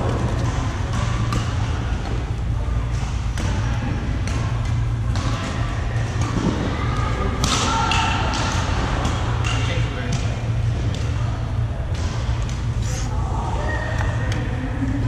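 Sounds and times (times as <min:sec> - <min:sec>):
steady low hum: 0:00.0 - 0:15.0
racket hitting shuttlecock: 0:07.4 - 0:09.7.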